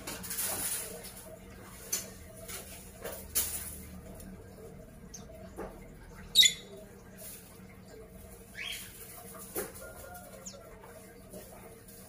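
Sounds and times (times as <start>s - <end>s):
small birds chirping: 4.6s - 9.4s.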